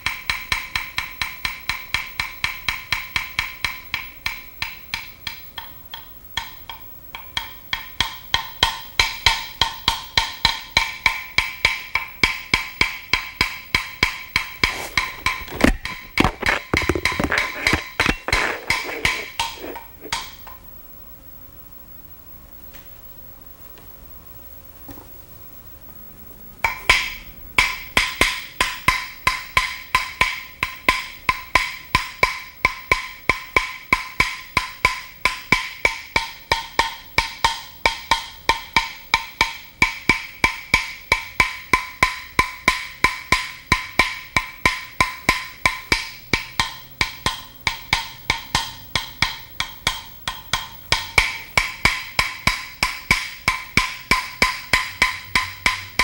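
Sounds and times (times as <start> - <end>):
jawbone scraped against bone clicks: 14.6 - 20.2.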